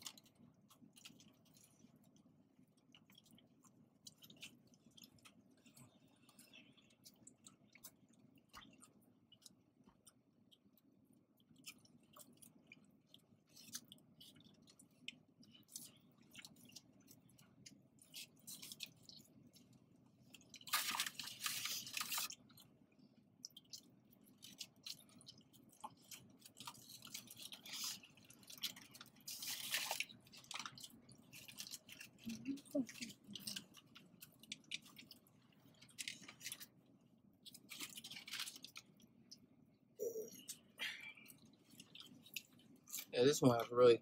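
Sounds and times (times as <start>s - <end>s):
person chewing food: 0.0s - 43.1s
crunchy rustling: 37.4s - 39.0s
wet mouth noises: 40.0s - 43.1s.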